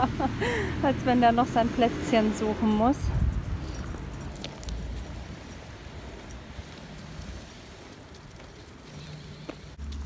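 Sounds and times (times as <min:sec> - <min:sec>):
faint metal jingle: 0:03.2 - 0:07.9.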